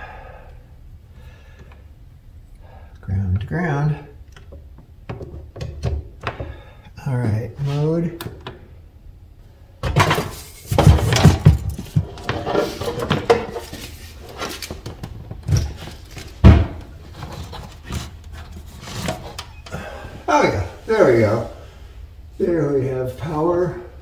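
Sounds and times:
wooden knocks and rubbing: 9.8 - 19.4
heavy thump on wood: 16.4 - 16.9.

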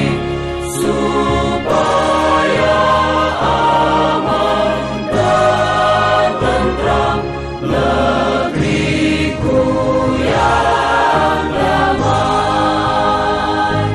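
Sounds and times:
choir singing held chords: 0.0 - 13.9.

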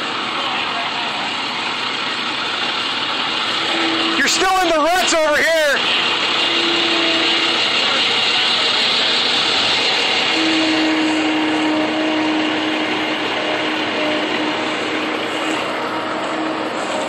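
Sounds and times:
diesel truck engine running hard: 0.0 - 17.0
wheels spinning in soft ground: 0.0 - 17.0
turbo whistle: 3.6 - 17.0.

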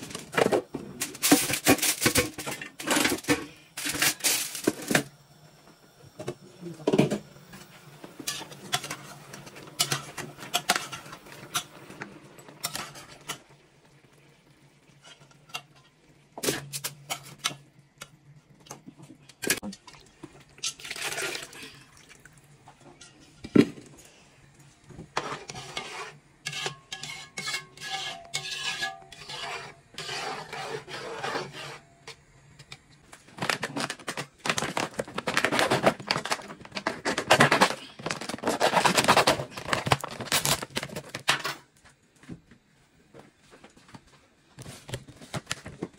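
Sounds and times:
pots and lids clinking: 8.2 - 11.9, 12.6 - 13.5
spoon scraping in metal pot: 25.1 - 32.2
plastic packet rustling: 33.1 - 41.4.

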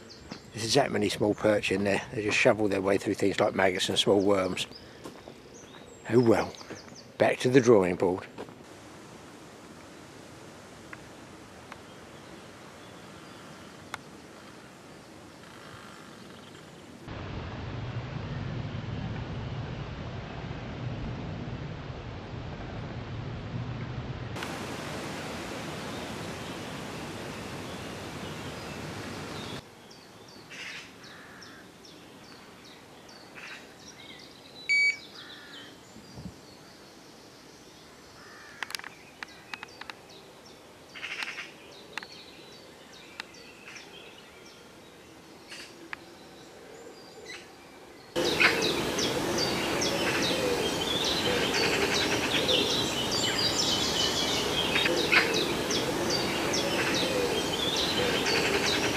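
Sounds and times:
birds chirping and singing: 48.1 - 58.9.

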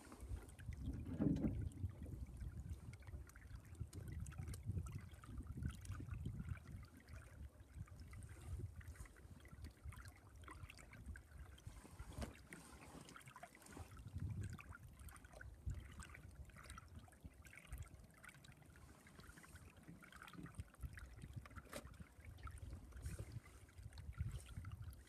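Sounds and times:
wind buffeting microphone: 0.0 - 10.1, 13.8 - 16.1, 22.3 - 25.0
small waves lapping against hull: 0.0 - 25.0.

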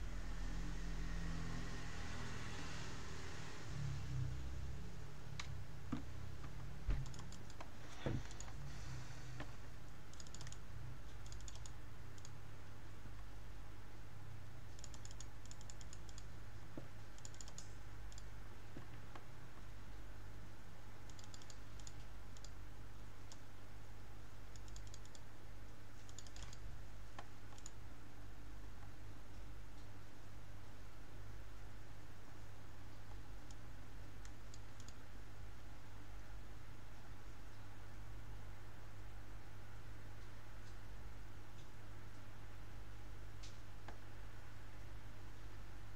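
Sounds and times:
low steady hum: 0.0 - 45.9
computer keyboard typing: 6.9 - 8.6, 10.1 - 12.4, 14.7 - 16.3, 17.1 - 18.3, 21.0 - 22.6, 24.5 - 25.3, 26.0 - 26.7, 27.5 - 27.8, 34.2 - 35.0.

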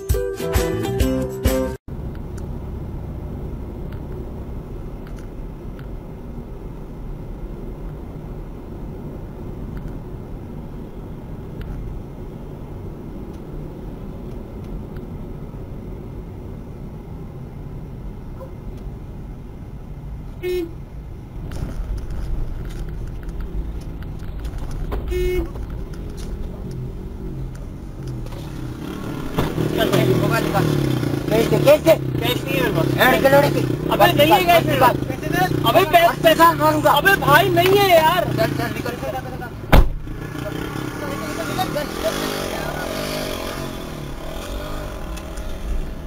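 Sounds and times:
road noise: 0.0 - 46.0
car engine rumble: 1.8 - 46.0
car horn toot: 20.4 - 20.8, 25.0 - 25.6.

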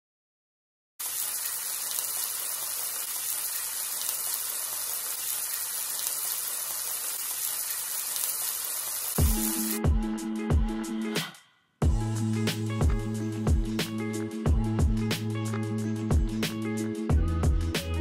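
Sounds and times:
meat sizzling in oil: 1.0 - 9.8.

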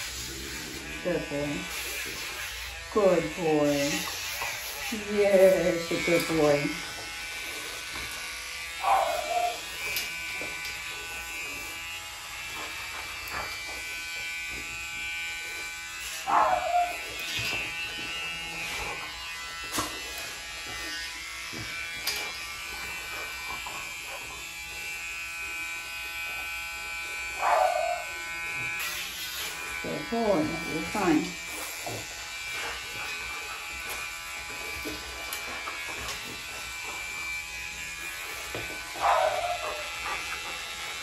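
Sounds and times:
electric nail grinder whining: 0.0 - 41.0
dog whimpering: 8.8 - 9.7.

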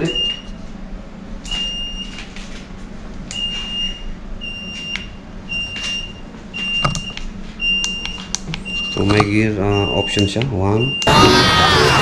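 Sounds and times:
high steady beeps: 3.4 - 11.2.

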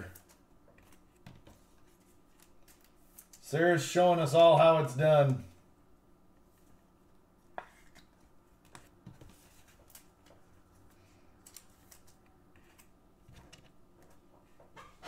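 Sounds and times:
trading cards clicking and rustling: 7.7 - 14.2.

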